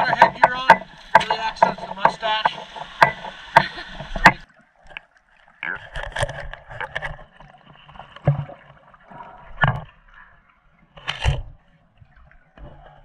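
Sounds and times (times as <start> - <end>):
steady hiss: 0.0 - 4.4
underwater water sloshing: 0.0 - 13.0.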